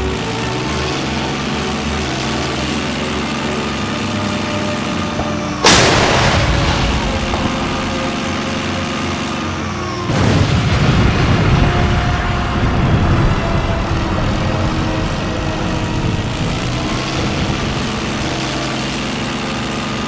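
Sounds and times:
heavy rough rumble: 0.0s - 20.0s
tank engine rumble: 0.0s - 20.0s
loud cannon shot: 5.2s - 8.8s.

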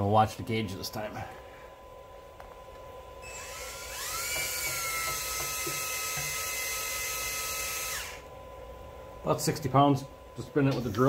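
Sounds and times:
electric drill whining: 3.2s - 8.3s.

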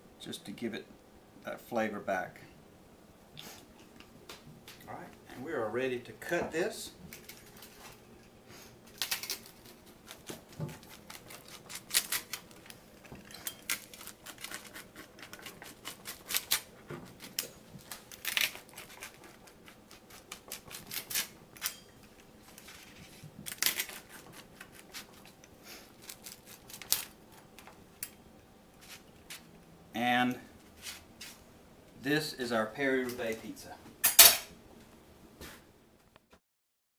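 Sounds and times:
pizza cutter crunching through pizza: 8.9s - 27.6s.

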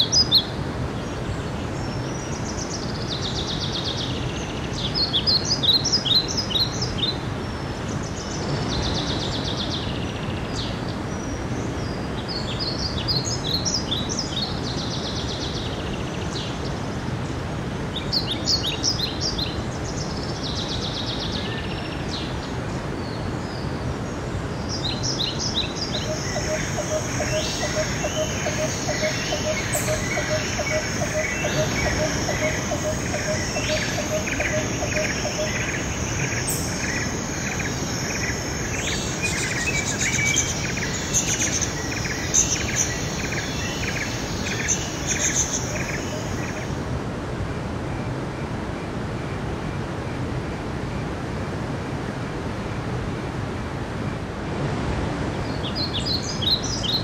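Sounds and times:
songbirds singing: 0.0s - 47.0s, 55.3s - 57.0s
stream rushing over rocks: 25.5s - 47.8s
low piping bird notes: 25.9s - 46.8s.

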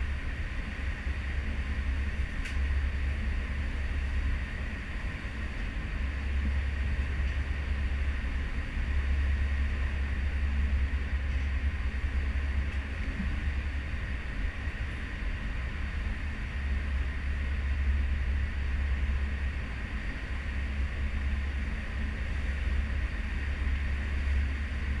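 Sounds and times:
deep ship rumble: 0.0s - 25.0s.

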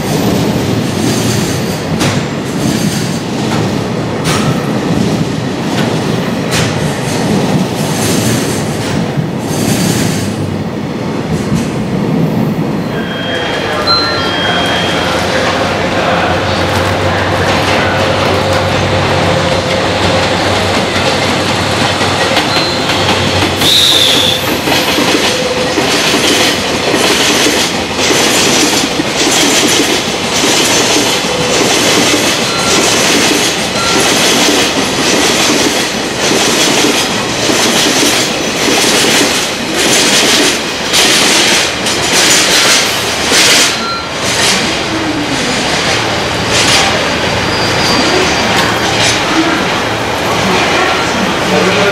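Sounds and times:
high wheel squeal: 12.9s - 15.6s, 23.6s - 24.6s, 47.0s - 48.9s.

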